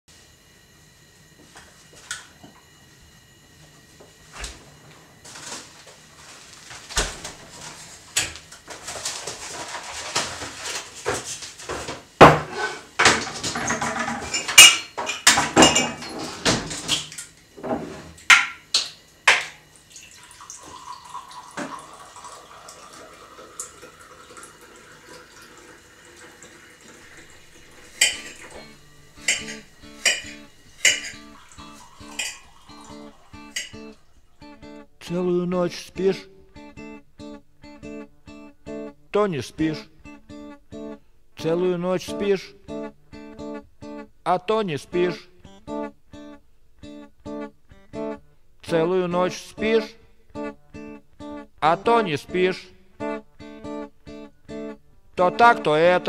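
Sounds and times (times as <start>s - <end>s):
plates pots and cutlery clattering: 8.7s - 19.6s, 27.9s - 34.0s.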